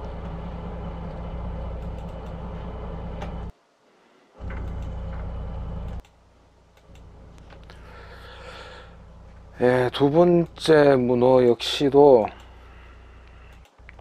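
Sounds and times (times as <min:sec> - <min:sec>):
boat engine humming: 0:00.0 - 0:03.5, 0:04.4 - 0:06.0
faint clicks: 0:05.8 - 0:07.8, 0:13.2 - 0:14.0.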